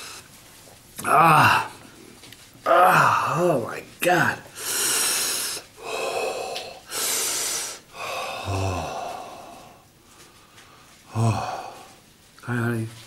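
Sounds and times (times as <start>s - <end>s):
man groaning: 1.0s - 1.8s, 2.6s - 3.5s, 8.3s - 9.3s, 11.1s - 11.8s
man breathing hard: 4.5s - 12.0s.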